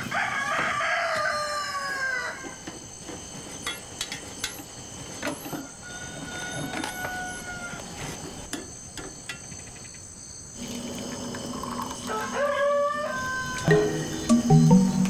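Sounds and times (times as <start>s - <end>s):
crickets chirring: 0.0s - 15.0s
pitched music tones: 13.6s - 15.0s.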